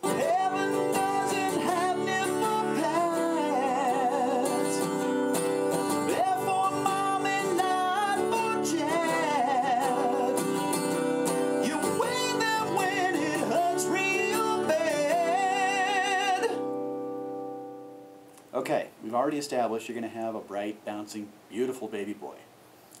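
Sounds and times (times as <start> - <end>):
man singing: 0.0 - 5.2, 5.9 - 16.7
acoustic guitar strumming: 0.0 - 18.4.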